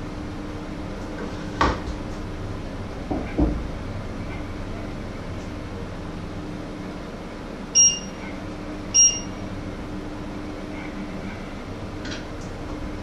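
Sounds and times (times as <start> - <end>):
steady low hum: 0.0 - 13.0
short electronic beeps: 7.8 - 8.2, 9.0 - 9.3.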